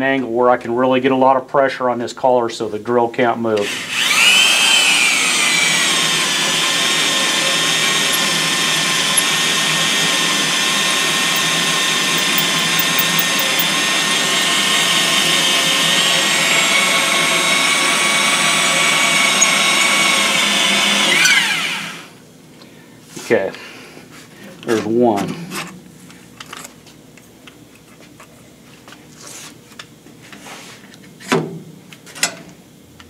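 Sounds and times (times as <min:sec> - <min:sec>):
electric drill running under load: 0:03.6 - 0:22.2.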